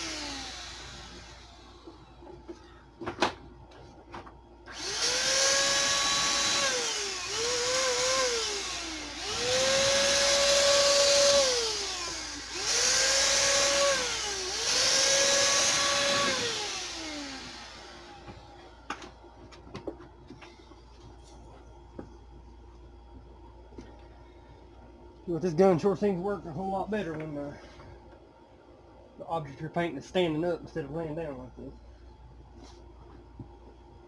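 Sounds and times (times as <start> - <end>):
electric paint sprayer motor whine: 0.0 - 2.6, 4.7 - 19.1.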